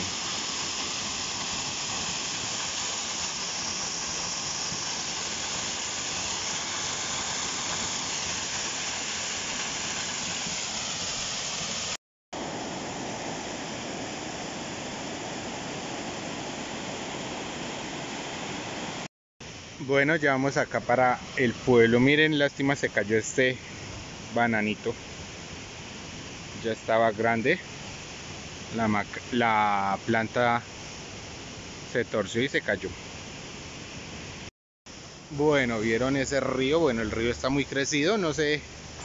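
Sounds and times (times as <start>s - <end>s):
small waterfall splashing: 0.0s - 19.1s.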